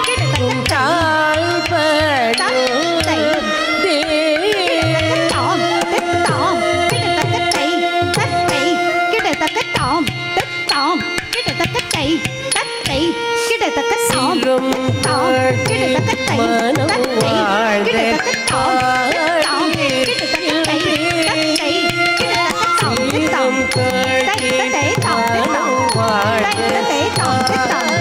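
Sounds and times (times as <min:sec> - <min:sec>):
ornamented melody line: 0:00.0 - 0:28.0.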